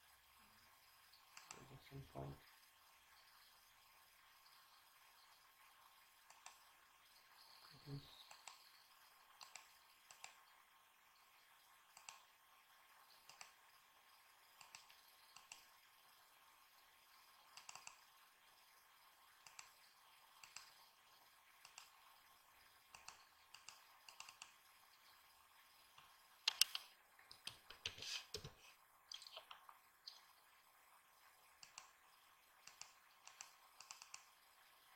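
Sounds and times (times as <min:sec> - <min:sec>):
mouse and keyboard clicks: 0:08.3 - 0:08.7, 0:09.4 - 0:10.4, 0:12.0 - 0:12.2, 0:13.2 - 0:13.6, 0:14.6 - 0:15.7, 0:17.5 - 0:18.0, 0:19.4 - 0:19.7, 0:20.4 - 0:20.8, 0:21.6 - 0:22.0, 0:22.9 - 0:24.5, 0:26.4 - 0:30.2, 0:31.6 - 0:31.9, 0:32.6 - 0:34.3.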